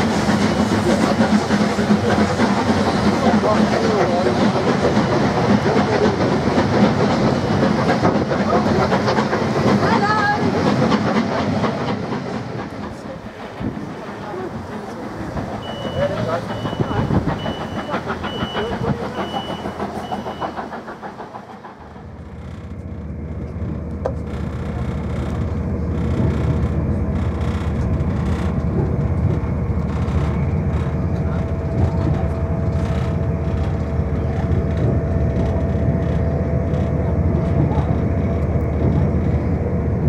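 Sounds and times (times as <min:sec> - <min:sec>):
clattering rail noise: 0:00.0 - 0:40.0
train rumble and whine: 0:00.0 - 0:40.0
short high beeps: 0:15.6 - 0:20.6.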